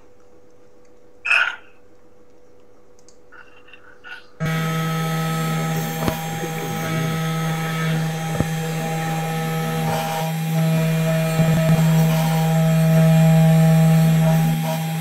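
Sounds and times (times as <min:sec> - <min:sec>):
cnc spindle motor humming and whining: 0:04.4 - 0:15.0.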